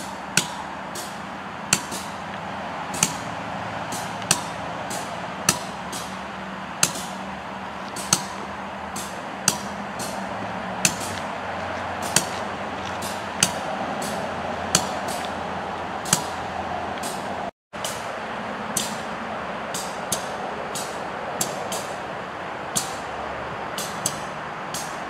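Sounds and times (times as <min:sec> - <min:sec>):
train wheels clacking over rail joint: 0:00.0 - 0:02.2, 0:02.9 - 0:03.3, 0:03.9 - 0:06.2, 0:06.8 - 0:07.2, 0:07.9 - 0:11.3, 0:12.0 - 0:15.4, 0:16.0 - 0:16.4, 0:19.7 - 0:22.0, 0:23.8 - 0:25.0
freight train rolling rumble: 0:00.0 - 0:25.0.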